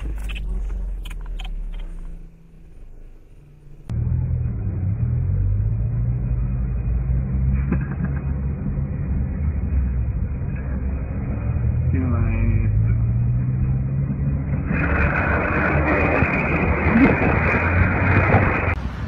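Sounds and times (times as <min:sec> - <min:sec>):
bus engine rumble: 0:00.0 - 0:19.0
road noise: 0:00.0 - 0:19.0.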